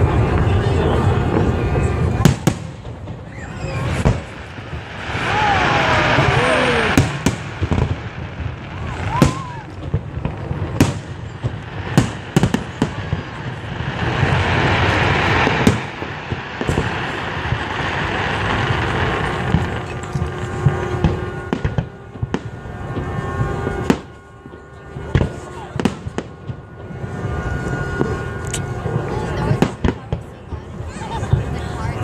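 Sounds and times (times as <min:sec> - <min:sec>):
fireworks rushing noise: 0:00.0 - 0:32.0.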